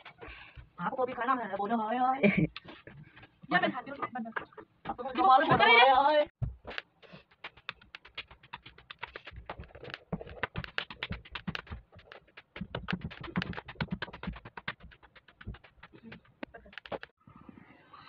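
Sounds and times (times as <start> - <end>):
dough slapped between palms: 6.4 - 17.1.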